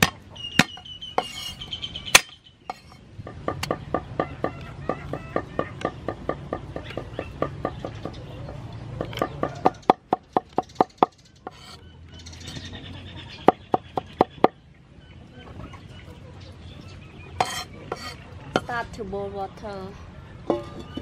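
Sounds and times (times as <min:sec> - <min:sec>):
cleaver chopping on wooden board: 0:00.0 - 0:01.5, 0:02.2 - 0:04.4.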